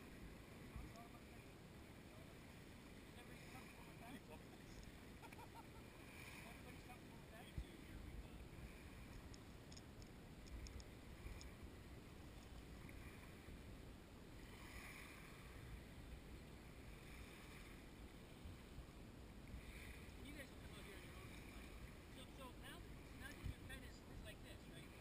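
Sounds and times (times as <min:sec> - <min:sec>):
low outdoor rumble: 0:00.0 - 0:25.0
faint ticks: 0:00.8 - 0:01.1, 0:08.9 - 0:11.6, 0:12.2 - 0:13.1.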